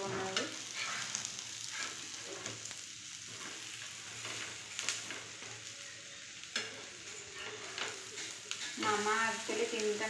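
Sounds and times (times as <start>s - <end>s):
metal spatula scraping a pan: 0.0s - 2.7s, 6.5s - 9.5s
bread sizzling on a griddle: 0.0s - 10.0s.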